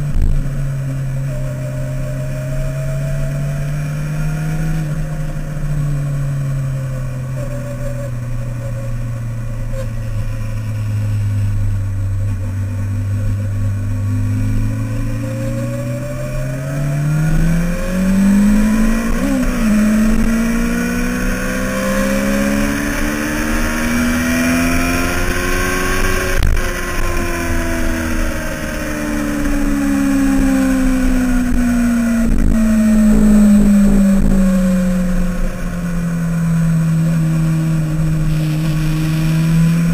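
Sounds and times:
motorcycle engine accelerating: 0.0 - 39.9.

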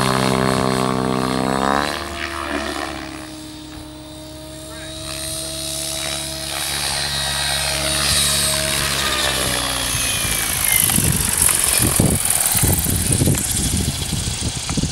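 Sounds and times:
rc helicopter motor whine: 0.0 - 14.9
gusty low rumble: 8.0 - 14.9.

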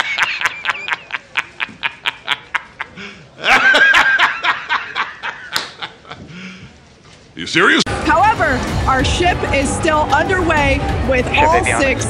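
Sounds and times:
man laughing hard: 0.0 - 6.3.

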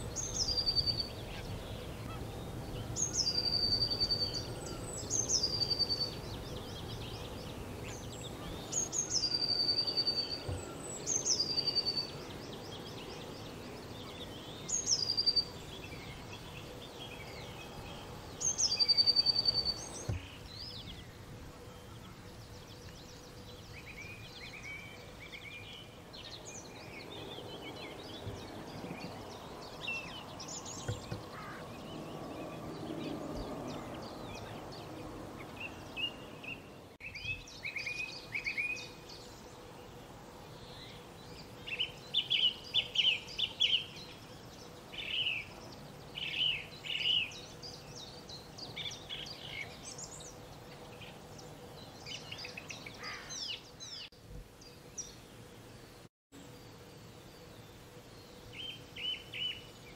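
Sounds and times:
songbirds singing and calling: 0.0 - 59.9.

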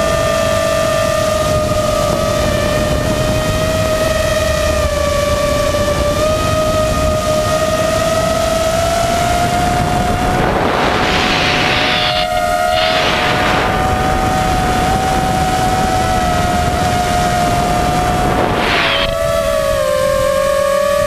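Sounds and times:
drone motors whining: 0.0 - 21.0
rushing wind noise: 0.0 - 21.0
surges of rushing air: 10.0 - 14.2, 17.4 - 19.4.

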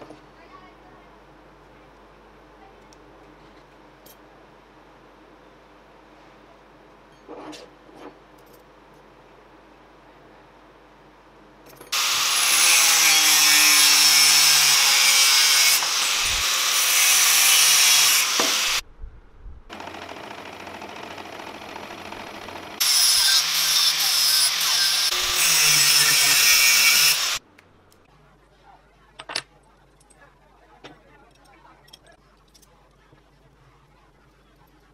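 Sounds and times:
angle grinder cutting steel: 12.0 - 18.8, 20.6 - 27.4.

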